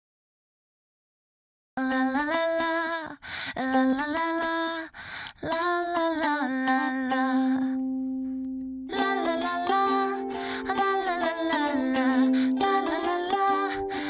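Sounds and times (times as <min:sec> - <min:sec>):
woman humming a melody: 0:08.9 - 0:14.0.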